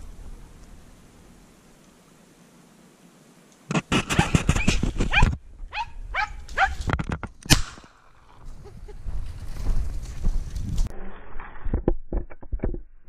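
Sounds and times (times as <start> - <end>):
dog yelping: 4.2 - 6.8
dog barking: 5.1 - 6.8
loud sharp crack: 7.4 - 8.4.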